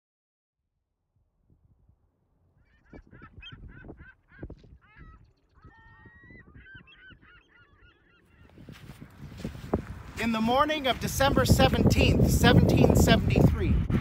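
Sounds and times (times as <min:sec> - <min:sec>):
geese honking: 0:02.6 - 0:11.9
low rumbling: 0:08.6 - 0:14.0.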